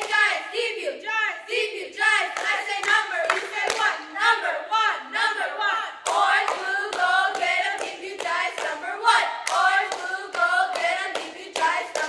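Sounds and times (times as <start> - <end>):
cheerleaders chanting in unison: 0.0 - 12.0
hand claps: 9.4 - 12.0.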